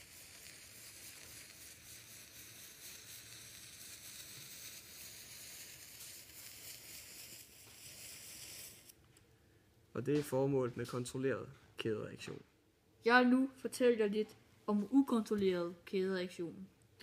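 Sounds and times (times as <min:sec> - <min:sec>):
matches burning with hissing sizzle: 0:00.0 - 0:09.0.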